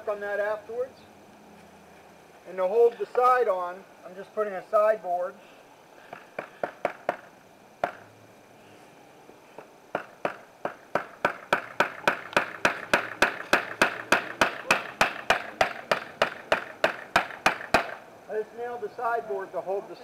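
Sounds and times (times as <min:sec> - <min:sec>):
hammer driving nails into wood: 0:10.0 - 0:18.0.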